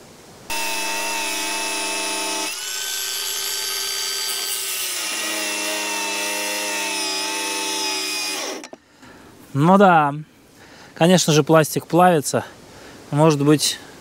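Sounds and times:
angle grinder cutting plastic: 0.5 - 8.8.

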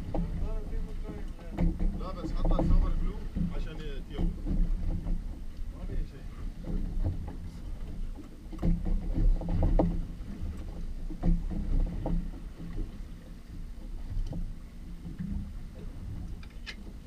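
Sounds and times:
knocks on boat: 0.0 - 13.2
water slapping against boat hull: 0.0 - 17.0.

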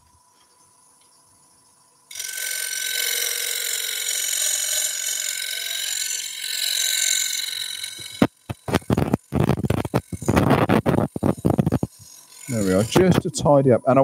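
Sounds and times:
chisel cutting wood on a lathe: 2.1 - 13.5.

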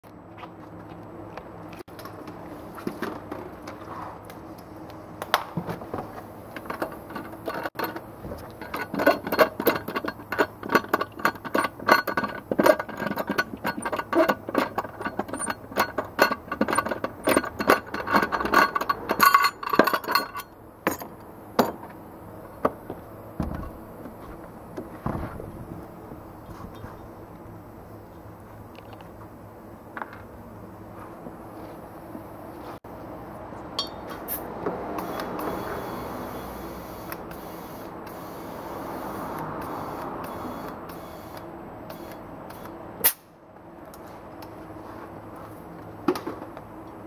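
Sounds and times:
metal nut clinking and rattling: 6.6 - 21.9.

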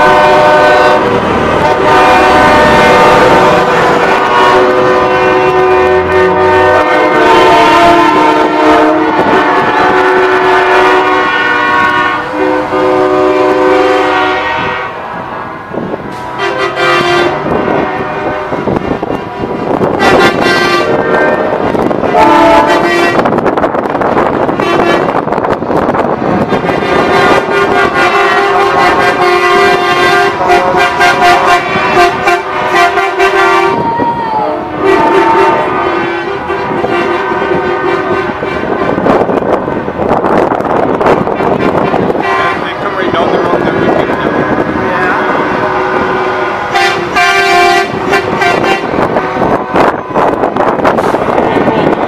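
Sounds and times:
truck air horn blasts: 0.0 - 23.4, 24.5 - 25.2, 26.3 - 33.8, 34.4 - 39.8, 41.4 - 52.0.

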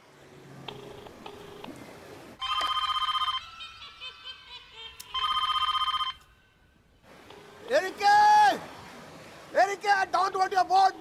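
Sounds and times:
telephone ringing: 0.7 - 1.7, 2.4 - 3.8, 5.1 - 6.5.

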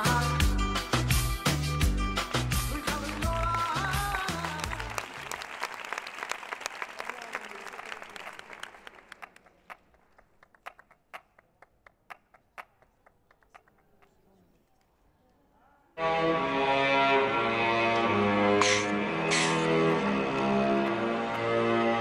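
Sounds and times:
pop music with heavy beat: 0.0 - 4.9
audience applauding: 2.2 - 11.4, 18.7 - 22.0.

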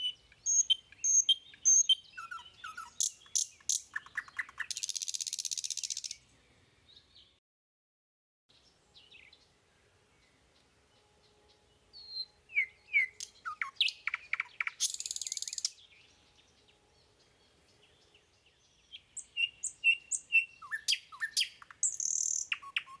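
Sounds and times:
buzzy bird trill: 0.0 - 6.2, 11.9 - 15.8, 19.2 - 23.0
songbird singing: 0.0 - 7.4, 8.5 - 23.0.

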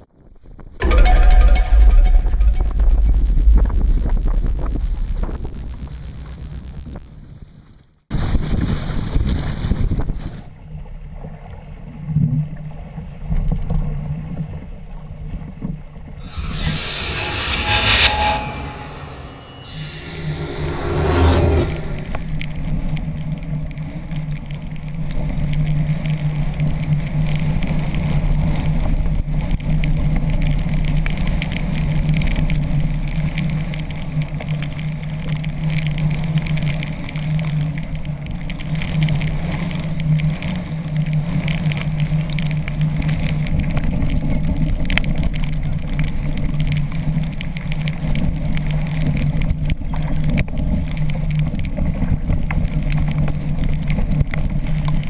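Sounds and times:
wind rushing: 16.2 - 22.7.

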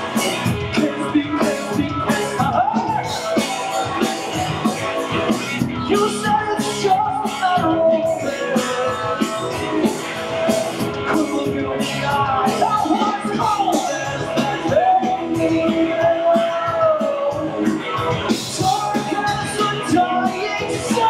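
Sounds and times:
bass guitar: 0.0 - 21.0
distorted electric guitars: 0.0 - 21.0
drum kit with cymbals: 0.0 - 21.0
male lead vocal singing: 0.0 - 21.0.

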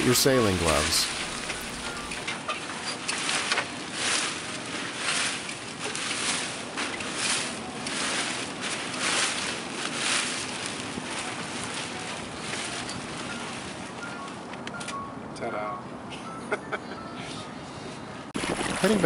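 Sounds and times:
wind and water hiss: 0.0 - 2.3, 3.1 - 14.4, 18.4 - 19.0
sail cloth rustling and flapping: 0.4 - 14.4, 18.4 - 19.0.

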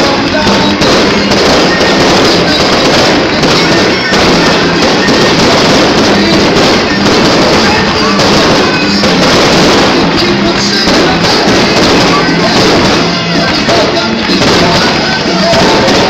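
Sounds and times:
fireworks crackling and banging: 0.0 - 16.0
music: 0.0 - 16.0.

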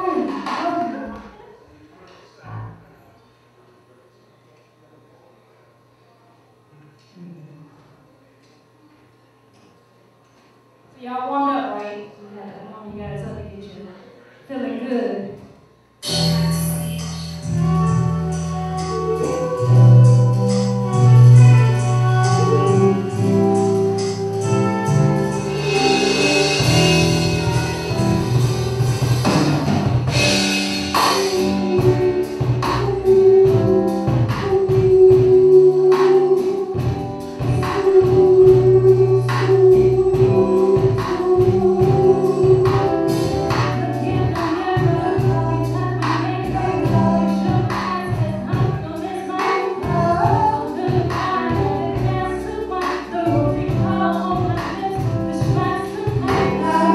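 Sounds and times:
woman singing: 0.0 - 1.4, 16.1 - 28.1, 30.2 - 56.9
live band playing: 16.0 - 56.9
drum beat: 20.4 - 35.5.

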